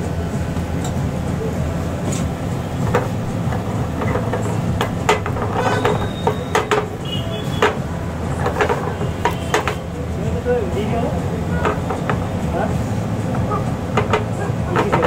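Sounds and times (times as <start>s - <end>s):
spatula scraping metal pan: 5.2s - 6.6s.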